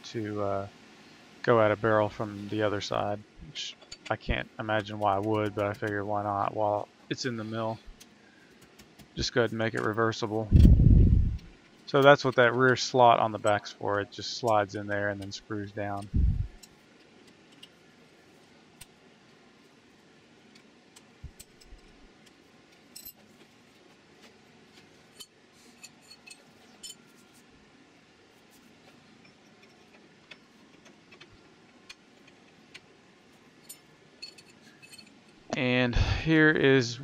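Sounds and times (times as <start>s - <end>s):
metallic clicks of steel parts: 3.7s - 6.5s, 11.3s - 17.8s, 20.4s - 23.6s, 24.2s - 27.4s, 33.5s - 35.6s.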